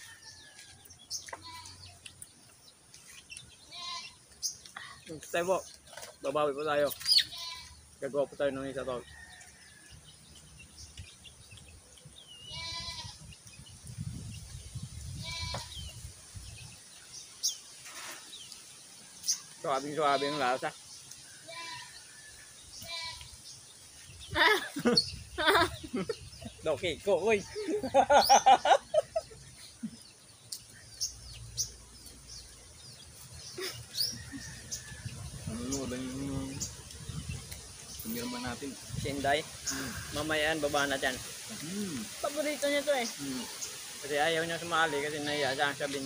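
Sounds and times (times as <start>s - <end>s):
goat bleating: 1.3s - 1.9s, 3.7s - 4.2s, 7.2s - 7.8s, 12.4s - 13.2s, 15.2s - 15.8s, 20.1s - 20.6s, 21.4s - 22.0s, 22.8s - 23.3s, 38.0s - 38.7s
high bird chirps: 6.8s - 7.7s.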